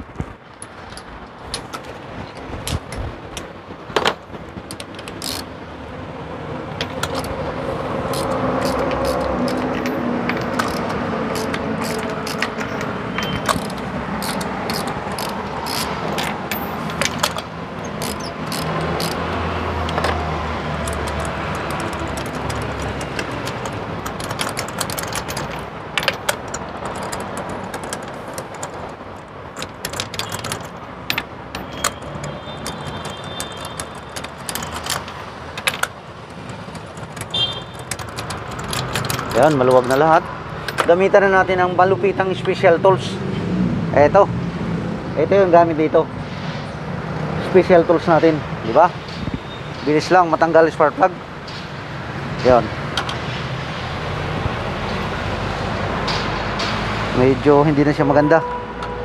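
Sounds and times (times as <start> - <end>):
ratchet wrench clicking: 4.7 - 5.5, 6.8 - 7.4, 8.0 - 40.9.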